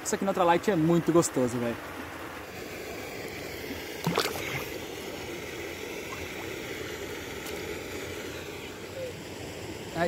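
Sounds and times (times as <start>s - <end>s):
running water: 0.0s - 10.0s
fish splashing into water: 3.0s - 8.4s.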